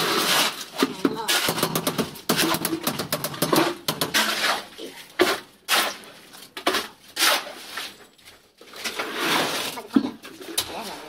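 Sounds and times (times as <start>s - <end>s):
metal tools scraping concrete: 0.0s - 11.0s.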